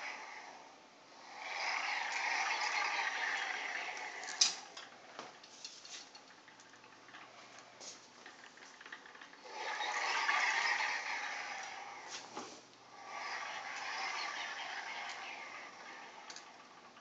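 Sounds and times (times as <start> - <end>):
robot drive motors whirring: 1.2 - 4.8, 9.4 - 17.0.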